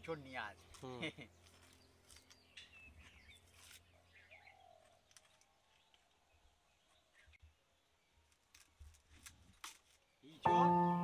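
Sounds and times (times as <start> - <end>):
faint birds chirping: 0.0 - 11.0.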